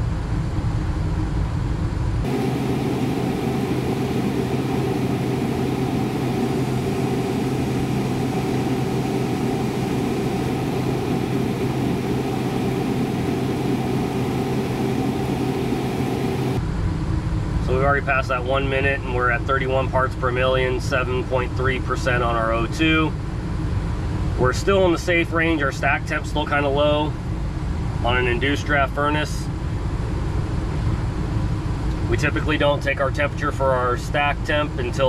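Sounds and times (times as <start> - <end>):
gas furnace humming: 2.2 - 16.6.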